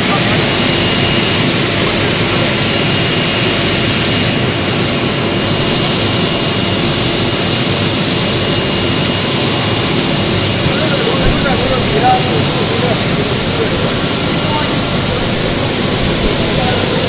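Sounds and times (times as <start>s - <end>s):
thin steady whine: 0.0s - 17.0s
water churning and bubbling: 9.4s - 17.0s.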